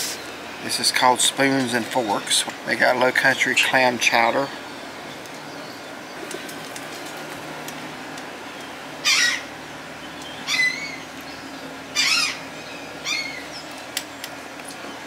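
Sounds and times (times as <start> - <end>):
bird calling: 8.5 - 15.0.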